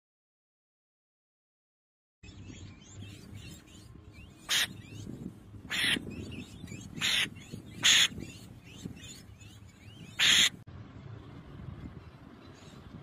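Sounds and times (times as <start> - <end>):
raptor chicks screeching: 2.8 - 10.6.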